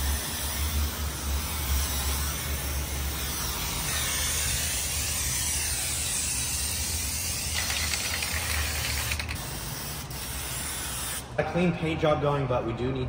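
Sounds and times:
steady low hum: 0.0s - 13.0s
spray can hissing: 4.0s - 11.3s.

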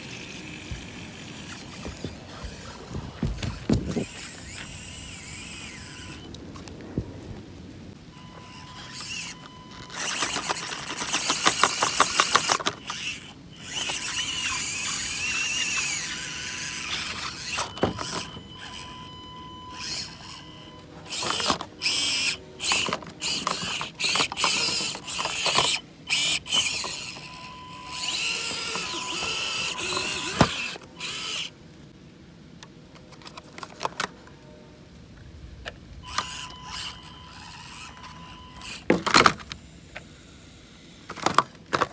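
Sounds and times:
toy car electric motor whining: 0.0s - 6.3s, 8.1s - 31.5s, 36.0s - 41.9s
ratchet-like gear chatter: 8.6s - 18.8s, 21.1s - 31.5s.

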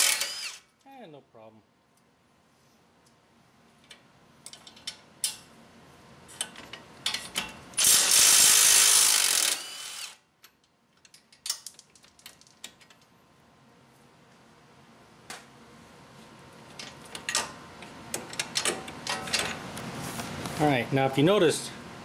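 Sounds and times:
cordless impact wrench running: 0.0s - 0.7s, 7.8s - 10.2s.

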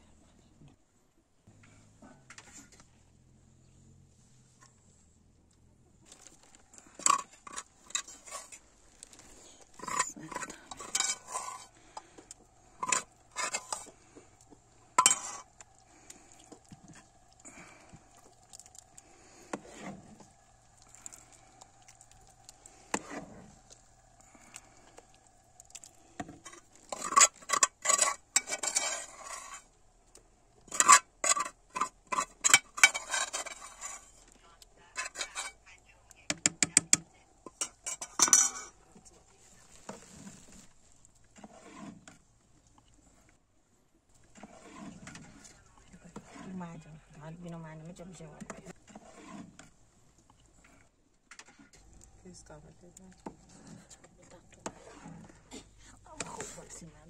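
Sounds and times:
metal ladle scraping metal pot: 6.1s - 12.0s, 12.6s - 18.0s, 19.4s - 21.5s, 22.6s - 25.1s, 25.7s - 29.8s, 30.6s - 34.3s, 35.0s - 35.6s, 37.4s - 38.8s, 41.4s - 42.2s, 44.2s - 46.7s, 48.4s - 49.7s, 54.6s - 56.8s.

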